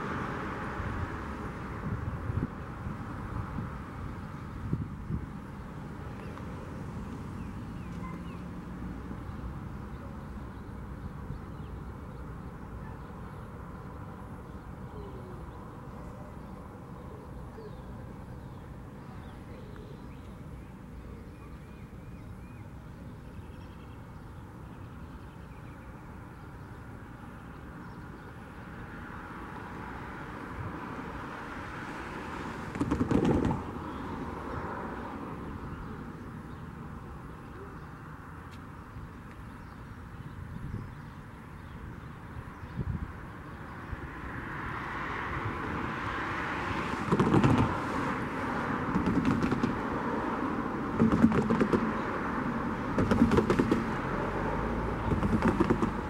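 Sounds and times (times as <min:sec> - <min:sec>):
distant traffic rumble: 0:00.0 - 0:56.0
faint bird chirps: 0:07.4 - 0:08.5, 0:09.9 - 0:26.8, 0:35.7 - 0:38.2.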